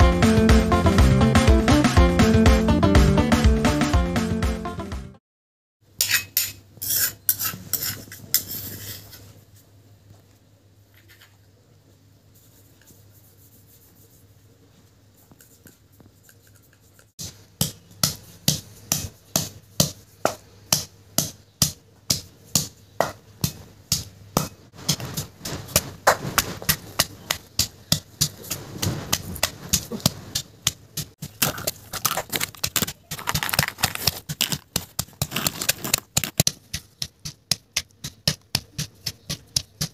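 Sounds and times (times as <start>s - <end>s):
pestle pounding in stone mortar: 17.2s - 39.9s.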